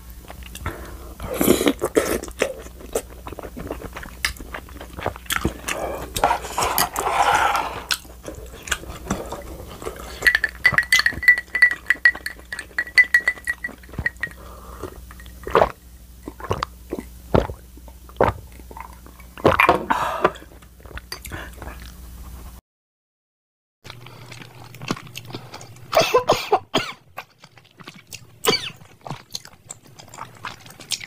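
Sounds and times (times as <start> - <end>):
person slurping and chewing: 0.3 - 22.0, 23.9 - 26.0, 27.2 - 31.0
person sipping a drink: 5.4 - 11.1, 19.4 - 20.5
clinks of spoon ice and glass: 10.2 - 14.4.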